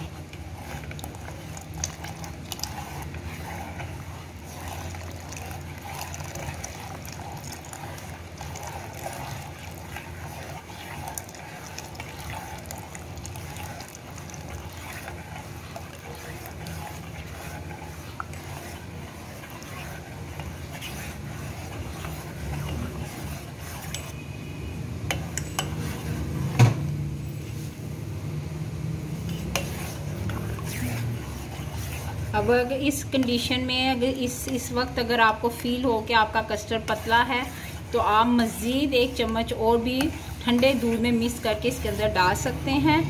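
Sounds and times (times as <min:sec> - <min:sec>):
metal spoon scraping pot: 0:00.0 - 0:24.4, 0:25.1 - 0:26.5, 0:29.2 - 0:43.0
steady low hum: 0:00.0 - 0:43.0
liquid pouring into pot: 0:00.1 - 0:24.1.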